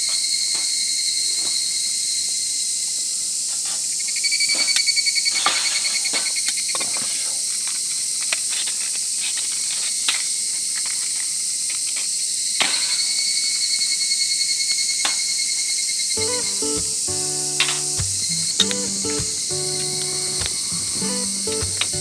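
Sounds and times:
insects chirping: 0:15.5 - 0:22.0
match being struck: 0:16.3 - 0:22.0.

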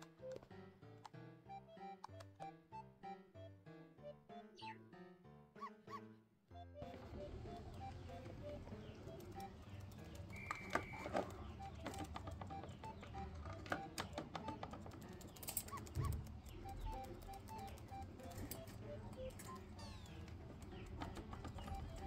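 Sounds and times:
sharp clicks and taps: 0:00.0 - 0:02.6, 0:06.9 - 0:22.0
light background music: 0:00.0 - 0:22.0
high whistle: 0:10.3 - 0:11.1.

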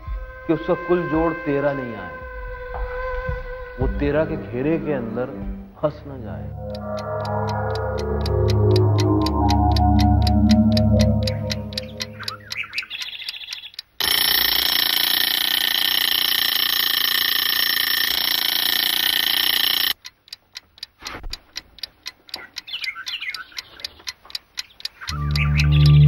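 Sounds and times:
clock ticking: 0:05.4 - 0:26.0
fixed high tones: 0:06.0 - 0:12.9
outdoor background noise: 0:06.6 - 0:26.0.

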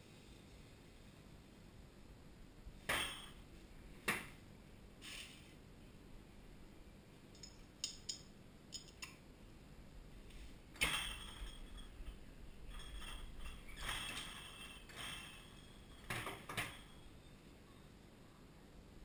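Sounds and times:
light metallic clicks of caps: 0:07.3 - 0:09.2.

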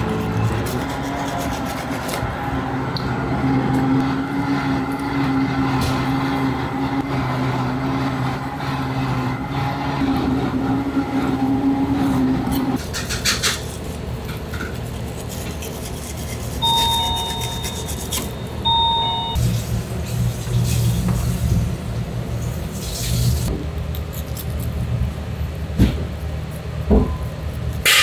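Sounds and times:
knife scraping cutting board: 0:00.0 - 0:02.2, 0:12.5 - 0:18.4
electronic beeps: 0:16.6 - 0:19.4.

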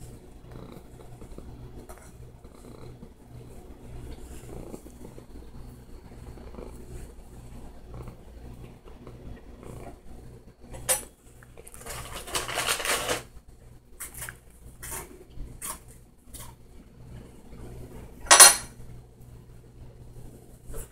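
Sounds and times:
dishes clinking and rattling: 0:18.3 - 0:18.8.

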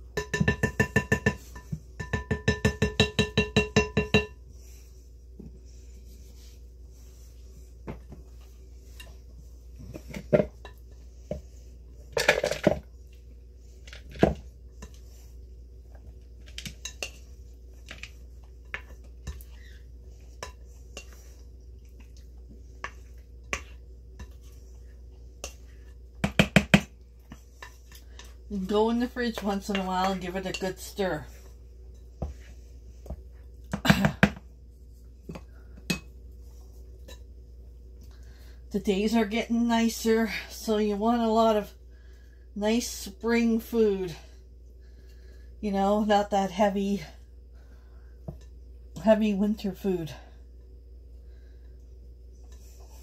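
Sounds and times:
dishes and utensils clinking: 0:00.2 - 0:04.4.

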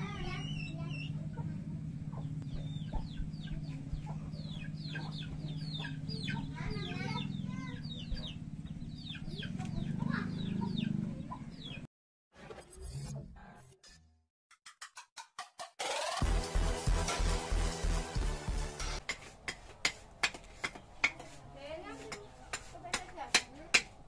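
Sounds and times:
chickens clucking: 0:00.1 - 0:11.9.

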